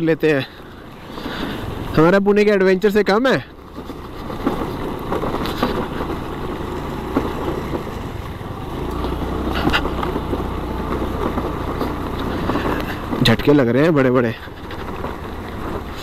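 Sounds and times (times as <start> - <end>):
scooter engine running: 0.3 - 16.0
knocks from bumps: 3.7 - 16.0.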